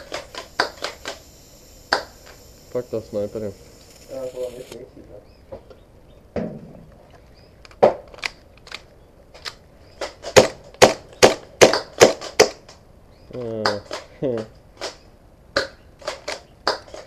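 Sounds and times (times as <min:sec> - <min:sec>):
airsoft pistol shots: 0:10.2 - 0:12.6.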